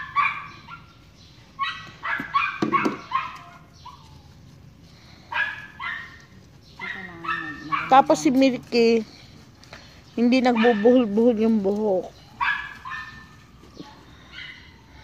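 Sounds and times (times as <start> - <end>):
small dog barking: 0.0 - 0.9, 1.6 - 4.1, 5.3 - 6.2, 6.8 - 8.2, 10.5 - 11.2, 12.4 - 13.2, 14.3 - 14.7.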